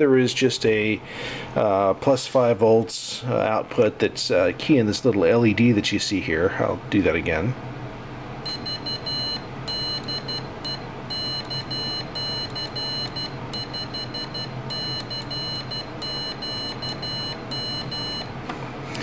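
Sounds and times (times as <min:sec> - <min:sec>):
high-pitched morse code beeps: 0:08.5 - 0:18.3.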